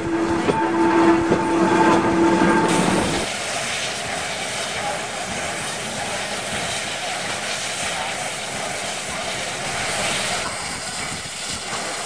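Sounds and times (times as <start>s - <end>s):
steam locomotive hissing: 0.0s - 12.0s.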